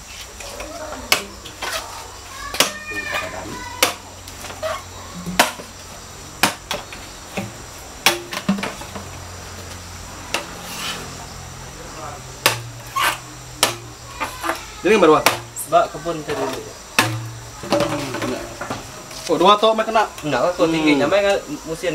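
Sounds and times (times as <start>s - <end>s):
faint voices: 0.0s - 6.4s, 10.0s - 21.9s
sharp knocks: 5.2s - 5.7s, 6.4s - 9.1s, 12.4s - 12.8s, 13.6s - 14.0s, 15.2s - 15.6s, 16.9s - 18.9s.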